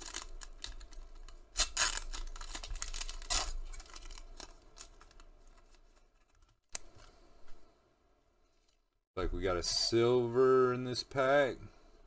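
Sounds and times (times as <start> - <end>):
foil wrapper ripping: 0.0 - 6.4
wrapper rustling in hands: 0.0 - 6.7.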